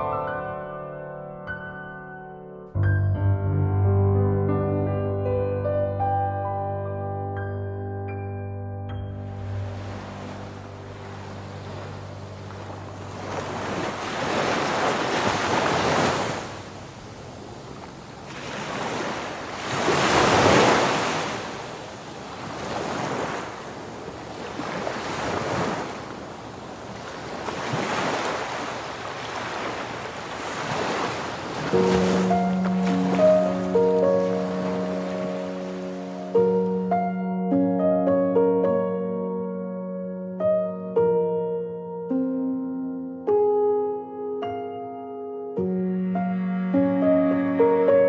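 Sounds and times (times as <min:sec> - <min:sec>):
small waves breaking on beach: 0:09.5 - 0:36.4.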